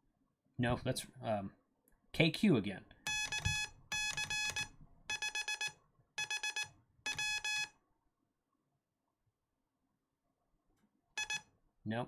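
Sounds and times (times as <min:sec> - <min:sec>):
morse code beep tone: 0:03.1 - 0:07.7, 0:11.2 - 0:11.5.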